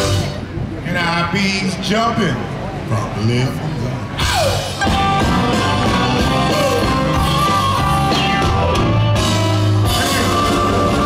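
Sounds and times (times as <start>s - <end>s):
drums: 0.0s - 2.9s, 4.0s - 11.0s
blues band playing: 0.0s - 11.0s
electric guitar: 4.2s - 11.0s
harmonica: 4.2s - 11.0s.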